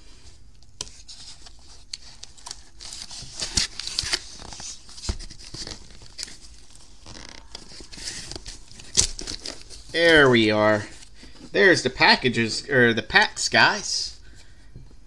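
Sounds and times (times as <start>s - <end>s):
cardboard tearing and scraping: 0.8s - 11.1s
cardboard flaps rustling: 0.8s - 11.6s.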